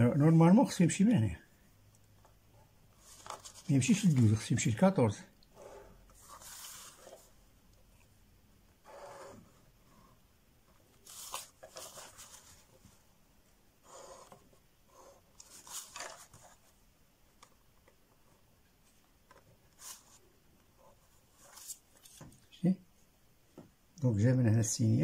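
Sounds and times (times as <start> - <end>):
paper rustling: 2.9 - 4.5, 6.2 - 7.4, 10.9 - 13.0, 15.4 - 16.8, 18.2 - 20.2, 20.8 - 22.4
pen scratching along ruler: 8.8 - 10.1, 13.8 - 15.2.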